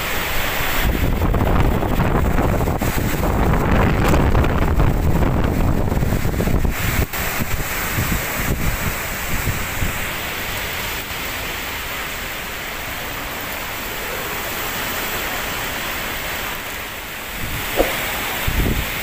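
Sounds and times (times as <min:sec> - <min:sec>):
heavy rain: 0:00.0 - 0:19.0
strong wind: 0:00.0 - 0:19.0
wind buffeting microphone: 0:00.5 - 0:11.1, 0:12.8 - 0:19.0.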